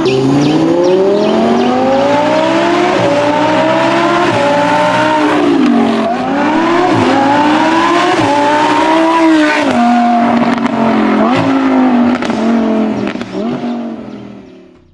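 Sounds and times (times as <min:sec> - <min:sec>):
sports car engine accelerating: 0:00.0 - 0:14.9
exhaust pops: 0:09.6 - 0:14.0.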